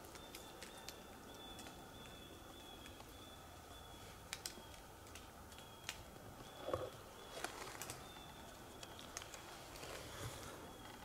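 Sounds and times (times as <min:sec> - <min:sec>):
faint sharp clicks and snaps: 0:04.3 - 0:06.1, 0:08.8 - 0:09.4.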